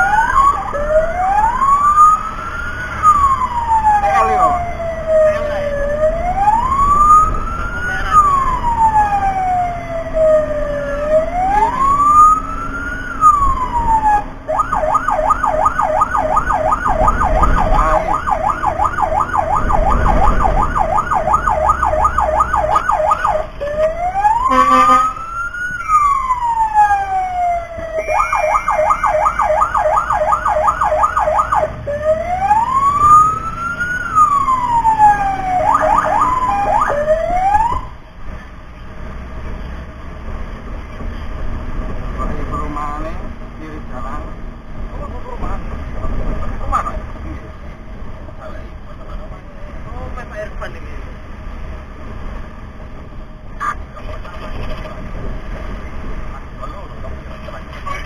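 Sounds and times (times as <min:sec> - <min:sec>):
electronic siren wailing and yelping: 0:00.0 - 0:38.0.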